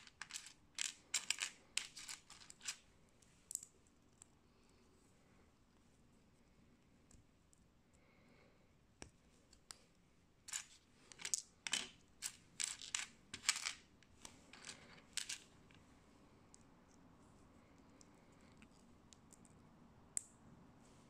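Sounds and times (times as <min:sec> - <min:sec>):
plastic bricks clattering: 0:00.0 - 0:02.8.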